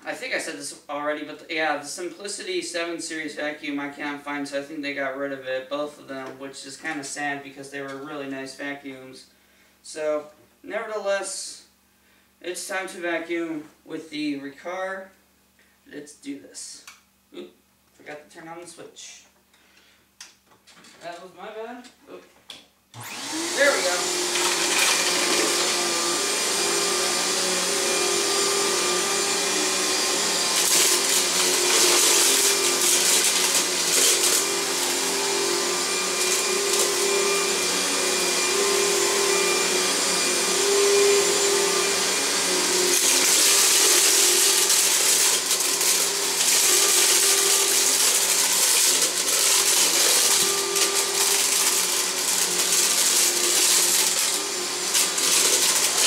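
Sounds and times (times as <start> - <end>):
vacuum cleaner on carpet: 23.0 - 56.0.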